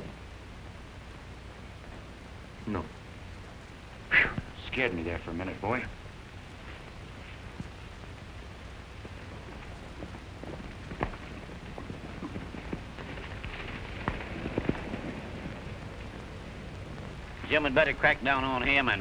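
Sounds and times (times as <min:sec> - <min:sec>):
film soundtrack hiss: 0:00.0 - 0:19.0
horse hooves clopping on ground: 0:06.5 - 0:19.0.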